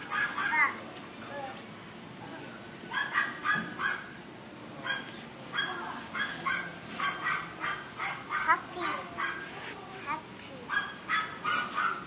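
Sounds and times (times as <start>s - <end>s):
puppies yapping: 0.0s - 0.8s, 2.9s - 4.2s, 4.8s - 9.4s, 10.7s - 12.0s.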